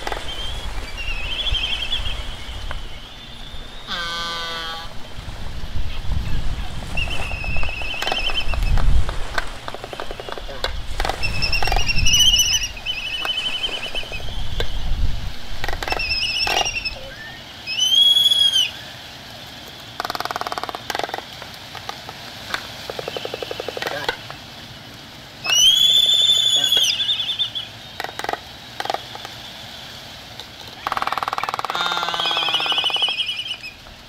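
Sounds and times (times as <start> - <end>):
gulls calling: 0.0 - 34.0
waves breaking: 0.0 - 34.0.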